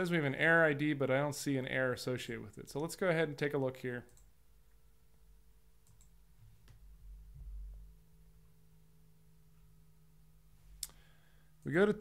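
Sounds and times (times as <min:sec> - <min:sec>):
faint steady hum: 0:00.0 - 0:12.0
computer mouse clicks: 0:05.8 - 0:06.2.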